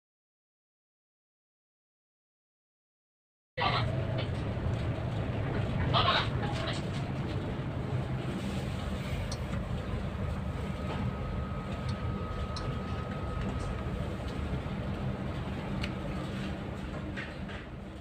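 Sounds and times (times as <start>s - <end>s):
machinery humming: 3.6s - 18.0s.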